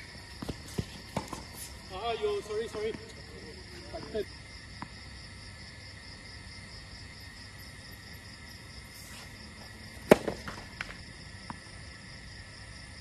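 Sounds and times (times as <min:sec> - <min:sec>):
night insects chirring: 0:00.0 - 0:13.0
tennis ball bouncing: 0:00.3 - 0:01.7, 0:10.0 - 0:11.6
tennis ball hit by racket: 0:10.0 - 0:11.0.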